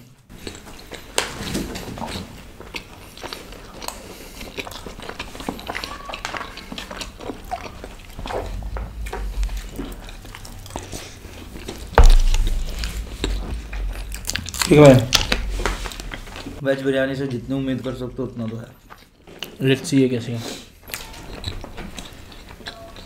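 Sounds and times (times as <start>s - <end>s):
chewing and wet mouth noises: 0.3s - 11.9s, 17.8s - 23.0s
loud low thump: 8.2s - 16.6s.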